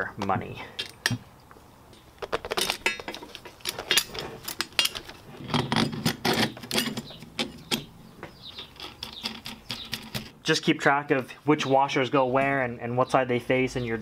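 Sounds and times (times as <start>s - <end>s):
metallic clicks and clinks: 2.2s - 7.9s.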